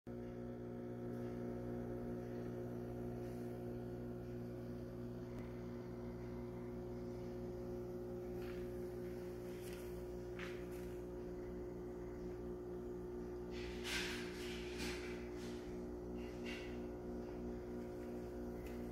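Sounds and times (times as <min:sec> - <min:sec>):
aquarium pumps humming: 0:00.1 - 0:18.9.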